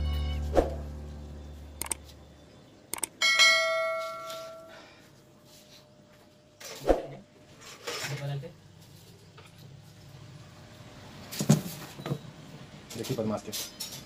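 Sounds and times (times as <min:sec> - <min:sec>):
guitar music: 0:00.0 - 0:02.6
bell-like ring: 0:03.2 - 0:04.8.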